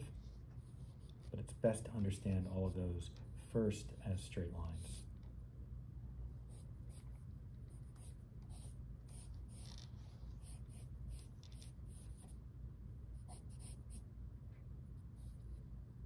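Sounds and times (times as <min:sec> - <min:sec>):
pencil scratching on paper: 0:00.0 - 0:02.9, 0:06.5 - 0:12.4, 0:13.2 - 0:14.0
steady low hum: 0:00.0 - 0:16.0.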